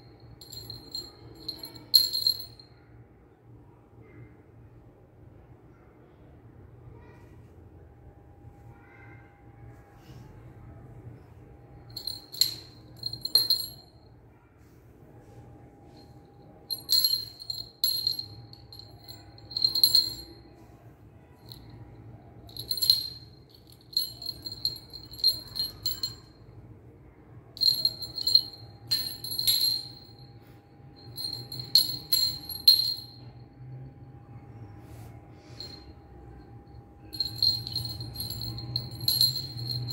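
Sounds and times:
small bell jingling: 0:00.0 - 0:02.7, 0:11.8 - 0:13.9, 0:16.6 - 0:20.6, 0:21.4 - 0:26.4, 0:27.6 - 0:30.3, 0:31.0 - 0:33.4, 0:35.4 - 0:36.0, 0:37.0 - 0:39.9.

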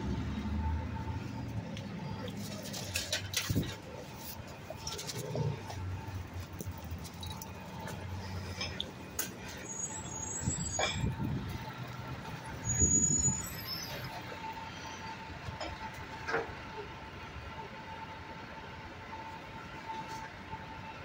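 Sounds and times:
garbage truck engine: 0:00.0 - 0:21.0
street traffic: 0:00.0 - 0:21.0
brief high squeals: 0:12.6 - 0:14.1.

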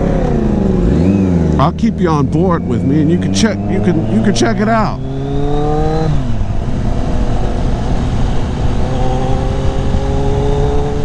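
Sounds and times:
motorcycle engine: 0:00.0 - 0:11.0
wind noise on microphone: 0:05.0 - 0:11.0.

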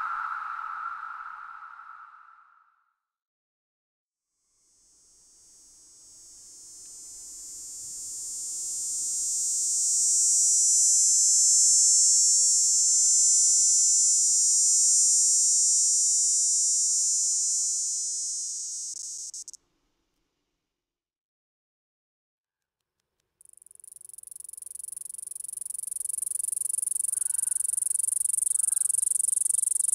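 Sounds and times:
cicada buzzing drone: 0:04.8 - 0:19.6, 0:23.8 - 0:29.9.

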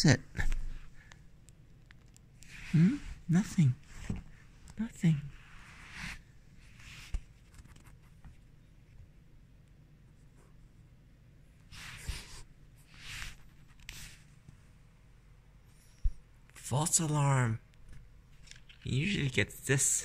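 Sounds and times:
scratchy rustles against carpet: 0:05.3 - 0:08.2, 0:11.7 - 0:14.4.

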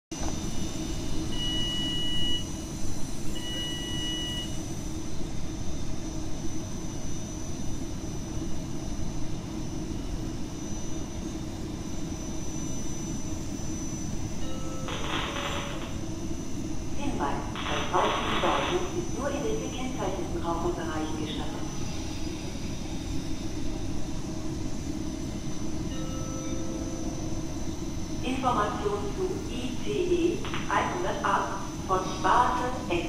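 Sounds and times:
train low rumble and hum: 0:00.1 - 0:33.0
long electronic beeps: 0:01.3 - 0:04.7, 0:13.5 - 0:16.6.

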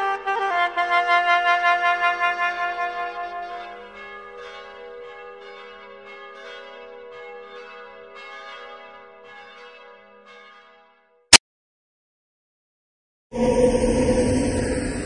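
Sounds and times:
bells ringing: 0:03.1 - 0:10.6.

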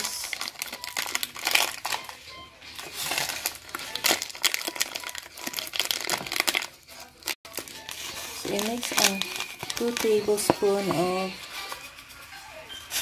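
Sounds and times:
foil packet crinkling: 0:00.0 - 0:12.2.

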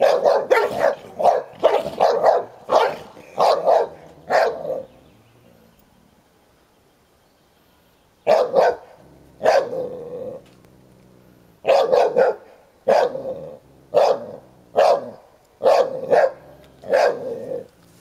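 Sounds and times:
dog barking: 0:00.0 - 0:04.8, 0:08.3 - 0:09.9, 0:11.6 - 0:13.3, 0:13.9 - 0:17.6.

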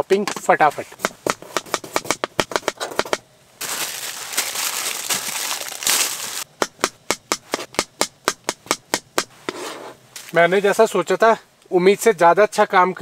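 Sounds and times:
knife chopping on cutting board: 0:01.0 - 0:03.2, 0:06.6 - 0:09.6
plastic bag crinkling: 0:03.6 - 0:06.5.

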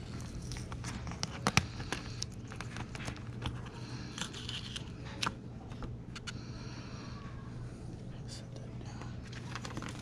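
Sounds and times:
plastic packaging crinkling: 0:09.2 - 0:10.0.

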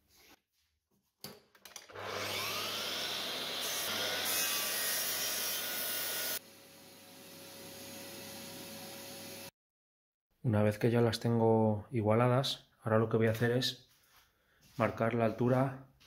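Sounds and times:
saw blade cutting wood: 0:01.9 - 0:06.4
miter saw motor whining: 0:01.9 - 0:09.5.

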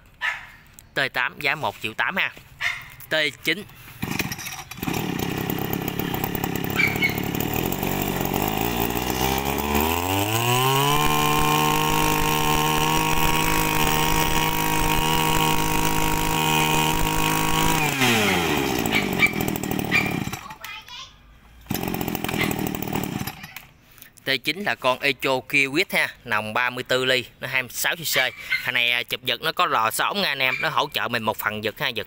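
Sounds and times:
brushcutter engine revving: 0:03.6 - 0:20.6, 0:21.6 - 0:23.6.

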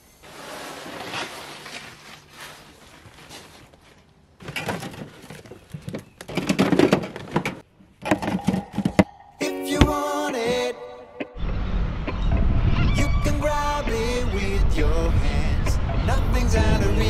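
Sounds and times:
packing rustling: 0:00.2 - 0:07.6
drink cans rattling: 0:04.4 - 0:09.1
goods clattering into car boot: 0:04.4 - 0:09.1.

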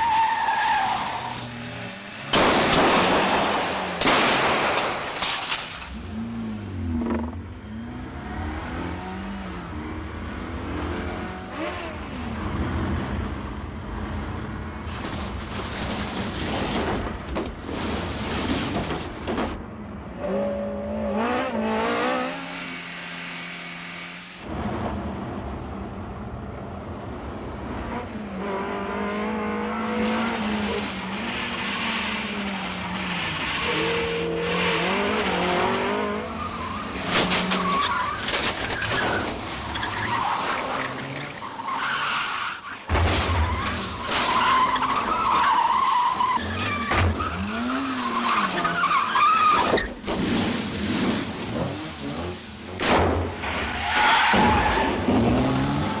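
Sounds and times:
car engines revving hard: 0:06.0 - 0:14.8, 0:20.1 - 0:25.2, 0:27.6 - 0:38.2, 0:50.5 - 0:56.0.

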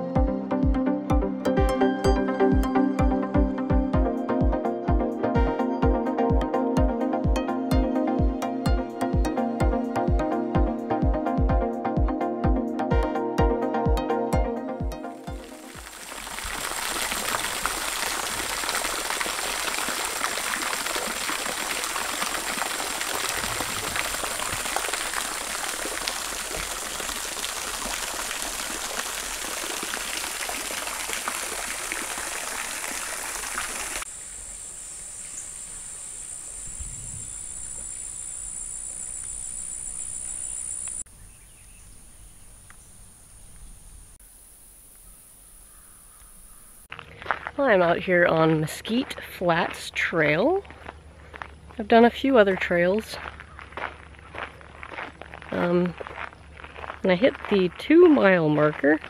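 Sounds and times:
water running: 0:15.1 - 0:34.1
high-pitched insect drone: 0:34.1 - 0:41.0.

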